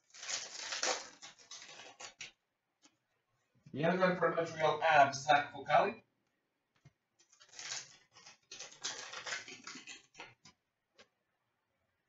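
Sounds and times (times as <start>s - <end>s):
cards shuffling: 0.0s - 2.3s, 7.2s - 10.4s.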